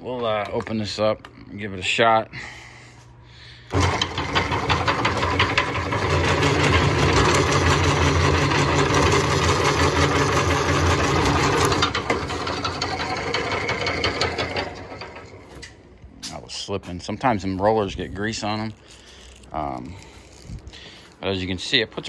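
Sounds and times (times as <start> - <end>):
electric motor humming: 3.7 - 15.5
rollers rattling: 3.7 - 15.8.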